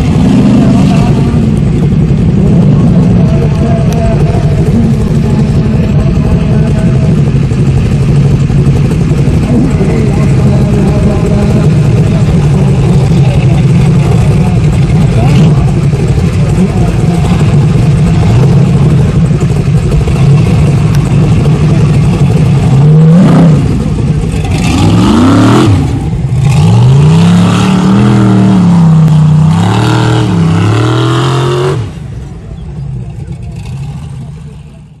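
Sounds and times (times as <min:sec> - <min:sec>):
buggy engine revving: 0:00.0 - 0:35.0.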